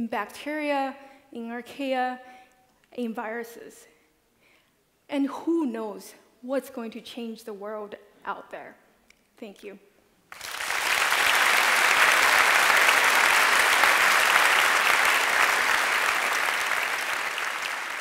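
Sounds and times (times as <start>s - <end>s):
large audience applauding: 10.3s - 18.0s.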